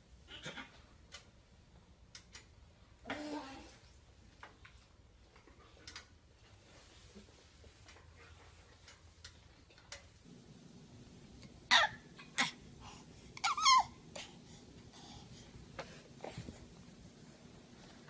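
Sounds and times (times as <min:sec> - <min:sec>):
baby squealing: 0:11.7 - 0:12.6, 0:13.4 - 0:14.0.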